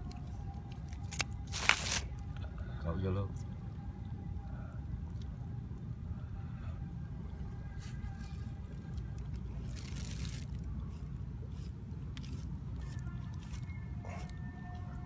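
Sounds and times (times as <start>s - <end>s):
rustling handling noise: 0.2s - 2.2s, 7.7s - 13.7s.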